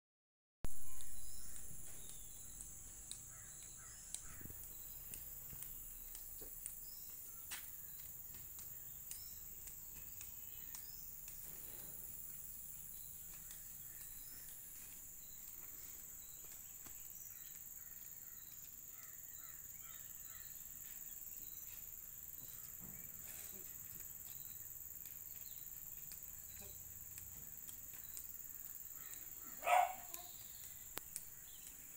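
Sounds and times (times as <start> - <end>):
faint clicks: 7.6 - 12.1, 24.3 - 31.9
short bird calls: 28.9 - 31.8.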